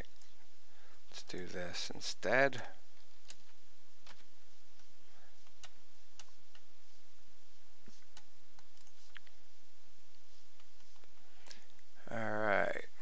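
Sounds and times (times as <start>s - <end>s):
steady low hum: 0.0s - 13.0s
computer mouse and keyboard clicks: 3.0s - 6.7s, 7.8s - 9.3s.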